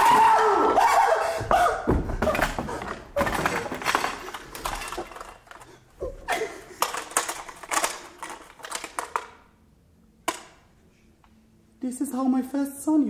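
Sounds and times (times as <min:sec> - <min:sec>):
plastic toy clicking and rattling: 0:03.2 - 0:05.8, 0:06.4 - 0:09.5.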